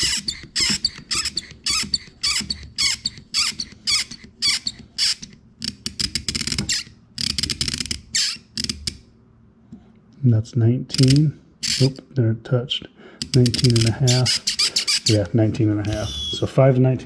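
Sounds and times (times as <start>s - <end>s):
hand vacuum pump squeaky hiss: 0.0s - 5.4s, 6.6s - 6.9s, 8.1s - 8.5s, 11.6s - 11.9s, 13.4s - 15.3s, 15.9s - 16.5s.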